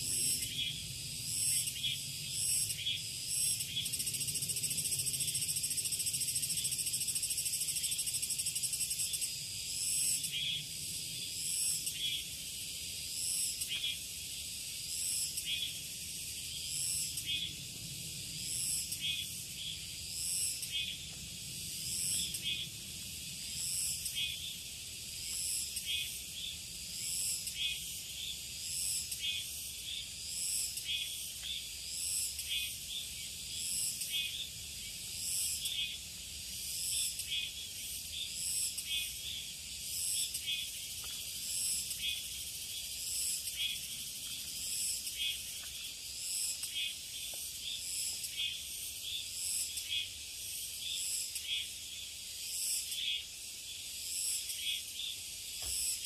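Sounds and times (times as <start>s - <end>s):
insects chirring: 0.0s - 56.0s.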